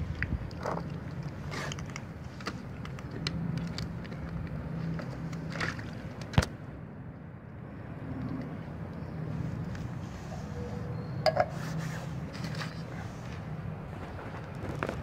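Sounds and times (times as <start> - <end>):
soft wet scrapes: 9.3 - 15.0.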